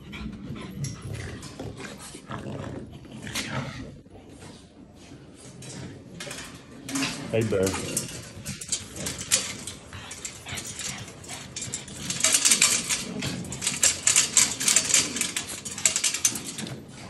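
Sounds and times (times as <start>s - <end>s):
wire dog crate rattling: 5.6s - 17.0s
claws clicking and scratching: 8.0s - 17.0s
dog noises: 8.0s - 17.0s.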